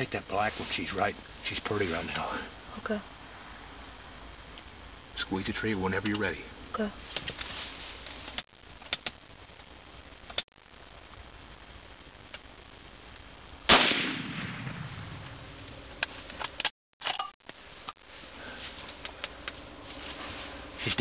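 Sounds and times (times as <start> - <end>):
rifle shot: 13.7 - 15.2.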